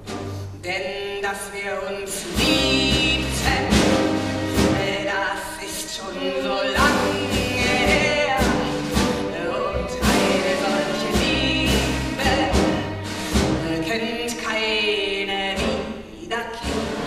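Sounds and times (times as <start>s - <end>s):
woman singing: 0.6s - 17.0s
instrumental accompaniment: 2.2s - 14.5s.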